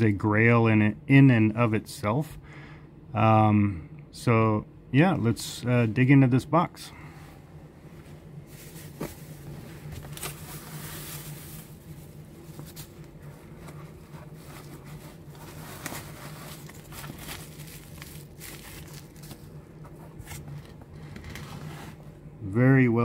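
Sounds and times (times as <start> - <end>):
plastic packing material crinkling: 8.4 - 22.0.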